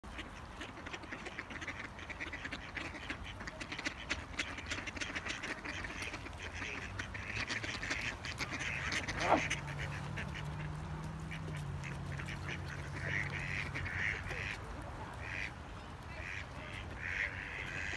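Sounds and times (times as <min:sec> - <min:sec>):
ducks quacking: 0:00.0 - 0:17.9.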